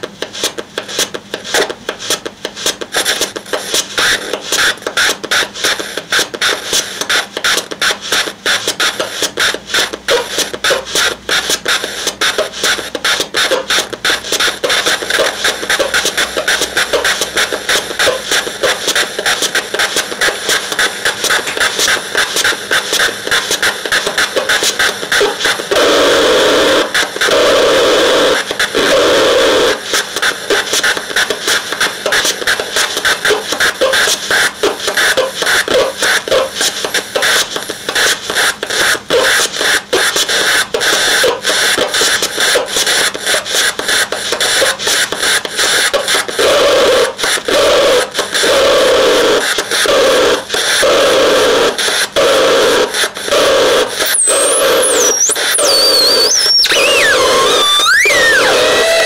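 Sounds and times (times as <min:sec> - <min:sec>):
harsh stuttering synthesizer noise: 0:09.5 - 0:31.3, 0:52.7 - 0:59.0
whistling pitch glides: 0:54.0 - 0:59.0
throbbing synth tone: 0:54.1 - 0:59.0.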